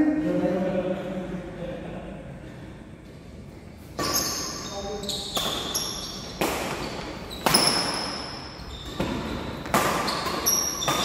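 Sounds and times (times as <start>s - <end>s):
high-pitched squeaks: 4.0s - 11.0s
racket hitting shuttlecock: 5.3s - 11.0s.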